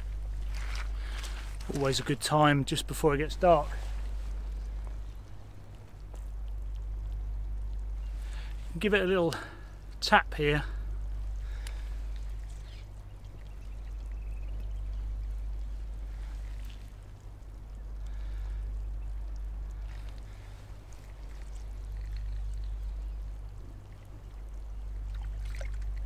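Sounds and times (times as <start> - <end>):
seawater lapping among rocks: 0.0 - 26.0
steady low rumble: 0.0 - 26.0.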